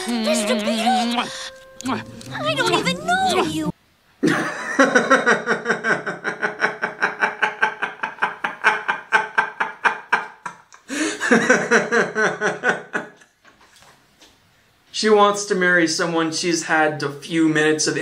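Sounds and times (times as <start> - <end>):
man laughing hard: 4.2 - 13.2.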